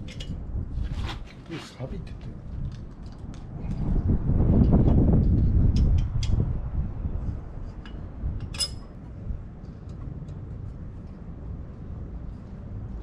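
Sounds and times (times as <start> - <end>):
wrench clinking on metal bolts: 8.4 - 8.9.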